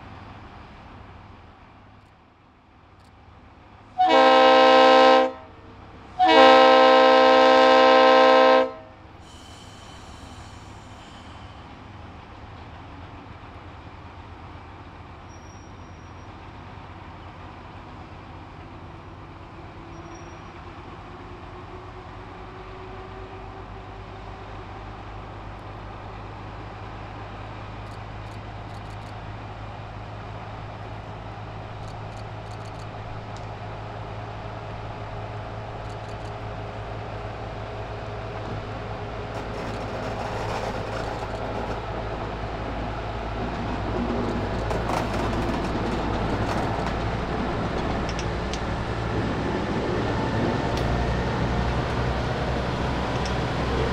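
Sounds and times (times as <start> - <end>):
diesel locomotive engine running: 0.0 - 53.9
train wheels clicking on rails: 9.1 - 23.2, 24.9 - 53.9.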